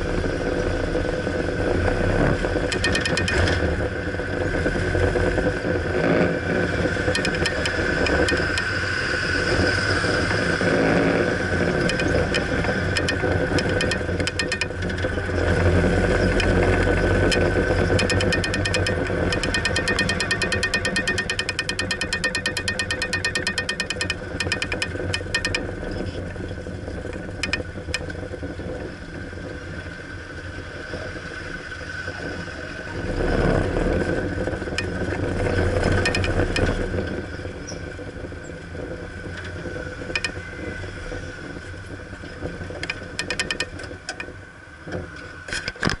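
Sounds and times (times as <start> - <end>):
car engine and road noise: 0.0 - 46.0
fast rattle: 2.7 - 3.6, 7.2 - 8.8, 11.9 - 14.9, 16.4 - 25.7, 35.9 - 36.8.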